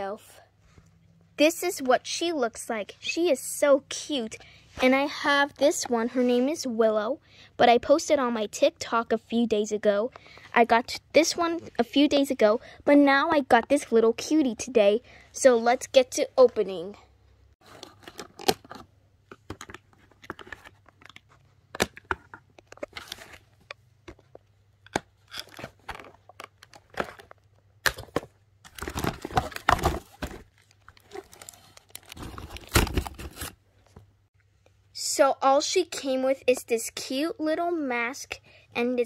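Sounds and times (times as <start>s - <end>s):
packaging tearing and crinkling: 28.7s - 33.6s.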